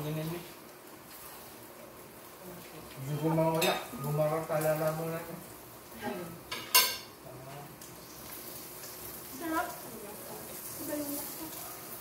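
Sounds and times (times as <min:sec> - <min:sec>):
woman's voice: 0:06.0 - 0:06.4, 0:09.3 - 0:11.8
cutlery clinking on plates: 0:06.5 - 0:07.2.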